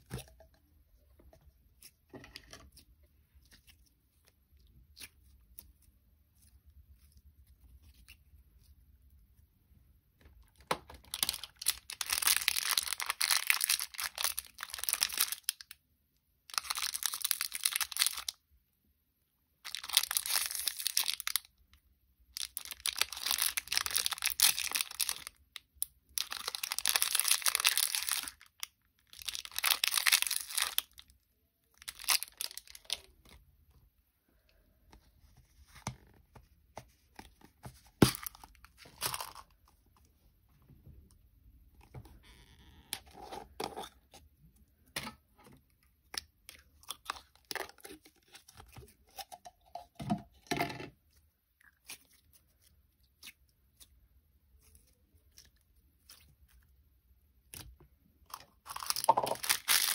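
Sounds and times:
slime crackling and tearing: 11.1s - 15.7s, 22.4s - 25.4s, 26.2s - 31.1s, 57.4s - 59.9s.

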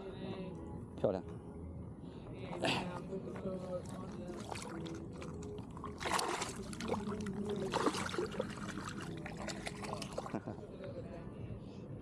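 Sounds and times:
water splashing and sloshing: 3.8s - 10.5s
hand splashing in water: 5.8s - 10.4s.

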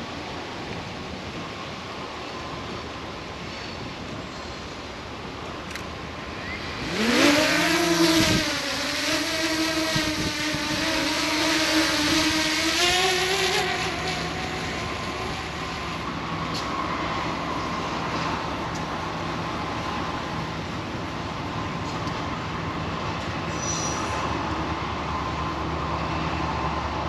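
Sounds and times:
faint low diesel hum: 0.0s - 27.0s.

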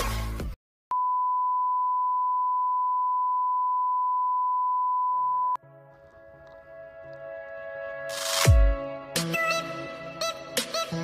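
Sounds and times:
steady high test tone beep: 0.9s - 5.6s.

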